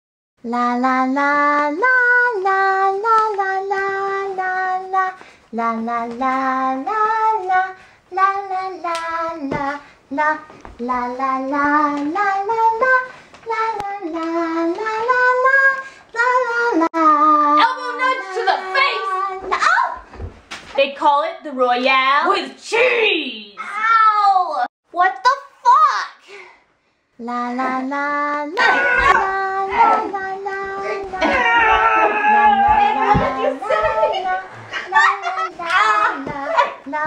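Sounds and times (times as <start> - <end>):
young woman singing: 0.4 - 20.1, 27.2 - 31.4, 32.9 - 37.0.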